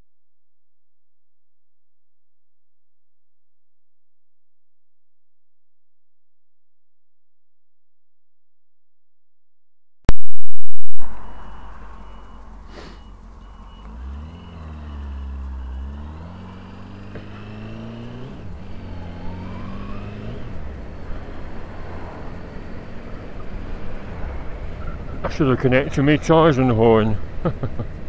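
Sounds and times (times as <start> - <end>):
loud distorted burst: 10.1 - 13.2
motorcycle engine revving: 11.1 - 28.0.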